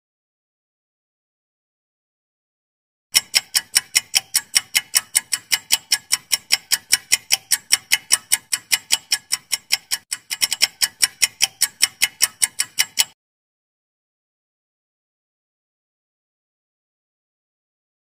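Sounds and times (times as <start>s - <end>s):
countdown timer ticking: 3.1s - 13.2s.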